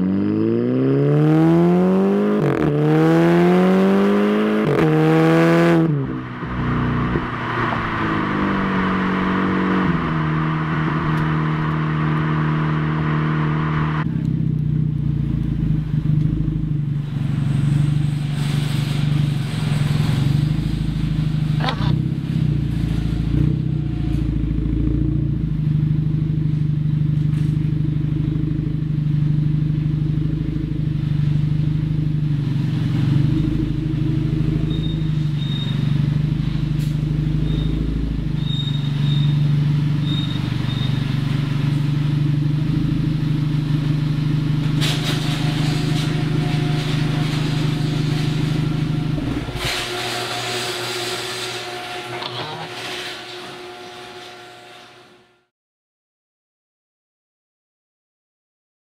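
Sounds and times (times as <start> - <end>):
car engine deep exhaust drone: 0.0 - 54.2.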